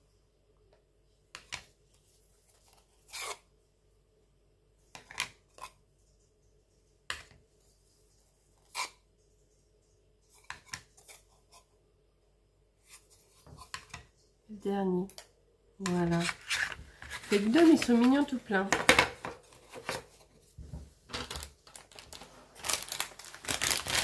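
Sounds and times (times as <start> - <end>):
rustling of packaged items: 1.7 - 3.4, 15.8 - 24.0.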